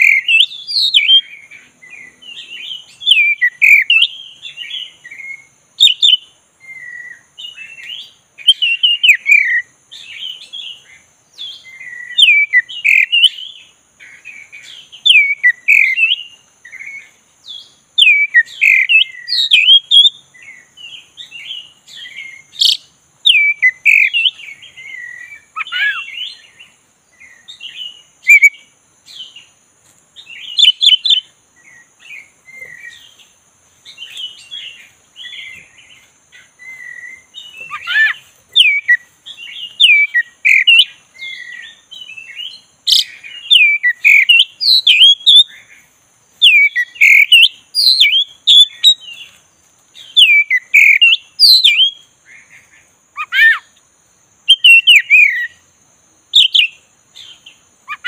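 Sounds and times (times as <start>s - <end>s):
bird singing whistled phrases: 0.0s - 1.3s, 2.0s - 10.8s, 11.4s - 13.6s, 14.7s - 26.5s, 27.2s - 28.6s, 30.4s - 33.1s, 36.6s - 45.5s, 46.4s - 49.2s, 50.0s - 52.0s, 53.2s - 53.7s, 54.5s - 55.6s, 56.4s - 58.0s.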